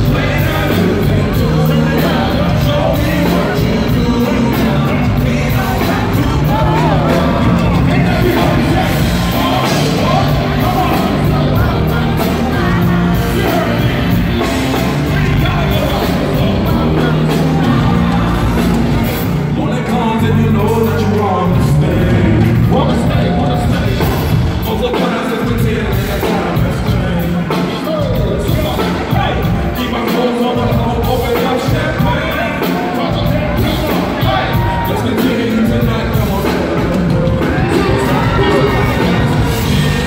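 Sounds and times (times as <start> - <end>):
bass line: 0.0 - 40.0
live hip-hop music: 0.0 - 40.0
person rapping into a microphone: 19.5 - 39.4.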